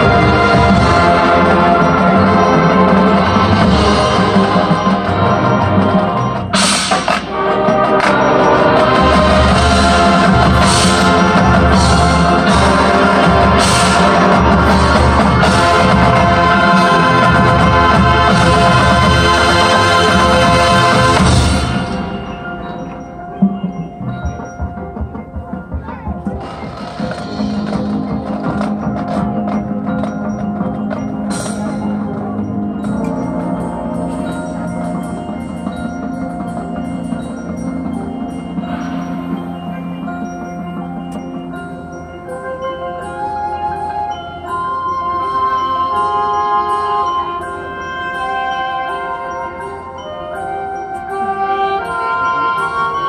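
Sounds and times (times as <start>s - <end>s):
mallet percussion: 0.0s - 53.0s
marching band playing: 0.0s - 53.0s.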